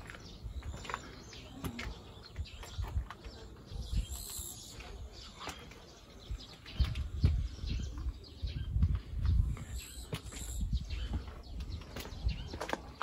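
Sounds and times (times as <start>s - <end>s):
footsteps: 4.7s - 13.0s.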